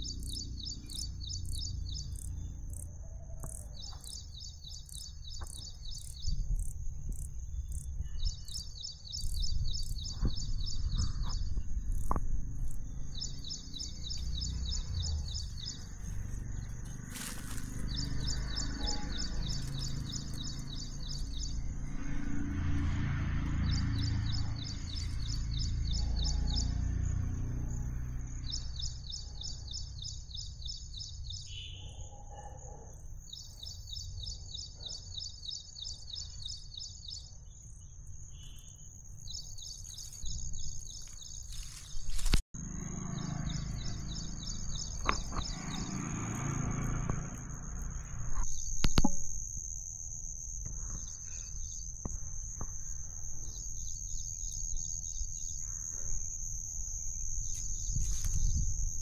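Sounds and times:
high-pitched insect trill: 0.0s - 59.0s
wind rumble on microphone: 5.0s - 28.6s, 57.3s - 59.0s.

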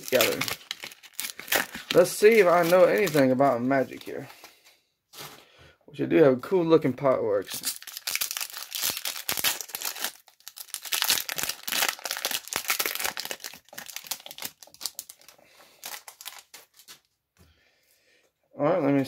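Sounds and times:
foil wrapper crinkling and tearing: 0.0s - 4.5s, 7.4s - 17.0s.

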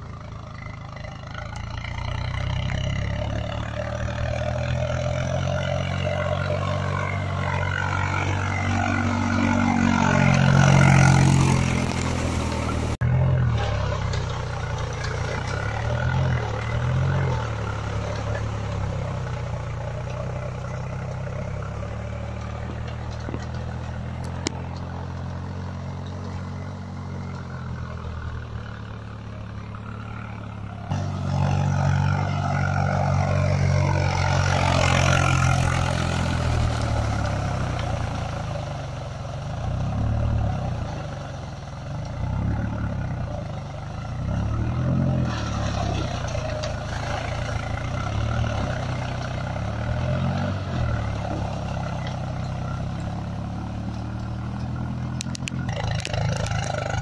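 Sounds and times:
tractor diesel engine under load: 0.0s - 57.0s.

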